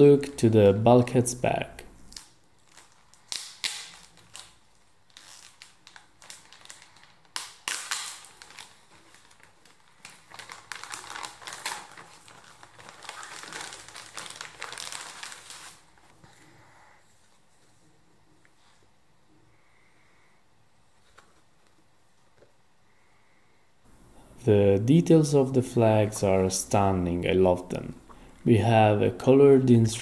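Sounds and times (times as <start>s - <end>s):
plastic bag crinkling: 2.0s - 16.1s
paper sheets rustling: 8.2s - 16.1s.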